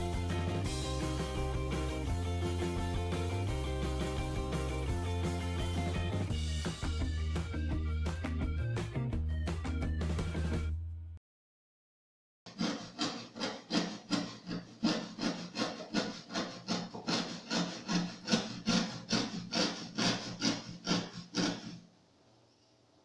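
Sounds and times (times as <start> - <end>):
hand saw cutting wood: 0.0 - 6.2, 12.5 - 21.9.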